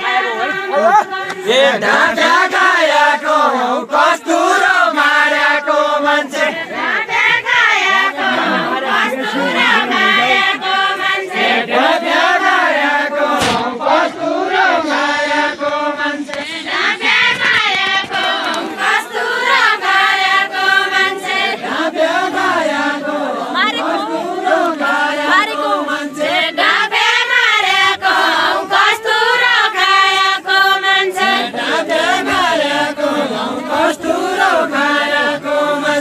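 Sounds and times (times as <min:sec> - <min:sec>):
group singing folk song unison: 0:00.0 - 0:36.0
sharp knock: 0:13.4 - 0:13.7.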